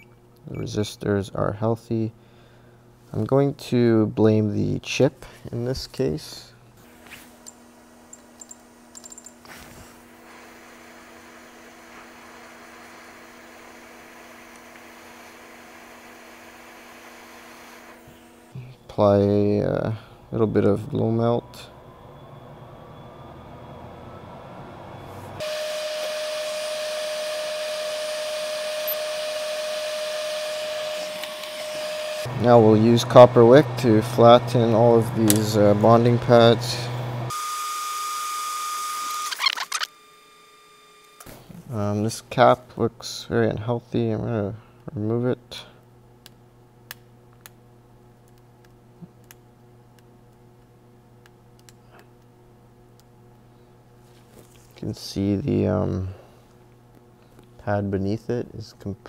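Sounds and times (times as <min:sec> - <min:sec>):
low electrical hum: 0:00.0 - 0:37.3, 0:38.9 - 0:59.0
hot air blower rushing: 0:08.8 - 0:39.4.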